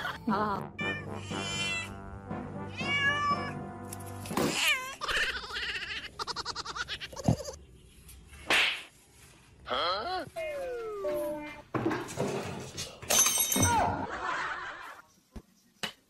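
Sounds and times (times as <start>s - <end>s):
cat meowing: 0.8s - 2.0s, 2.7s - 3.6s.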